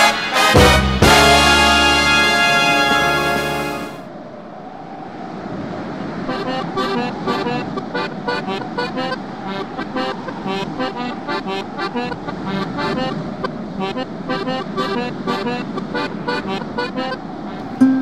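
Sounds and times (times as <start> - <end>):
accordion music: 0.0 - 4.0, 6.3 - 18.0
brass music: 0.0 - 4.1.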